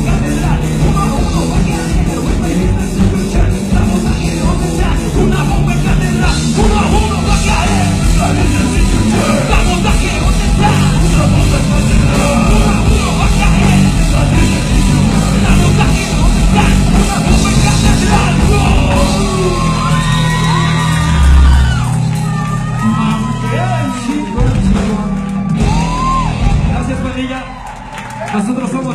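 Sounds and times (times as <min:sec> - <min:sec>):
drums: 0:00.0 - 0:28.9
electric guitars: 0:00.0 - 0:28.9
singer yelling into microphone: 0:03.5 - 0:21.9.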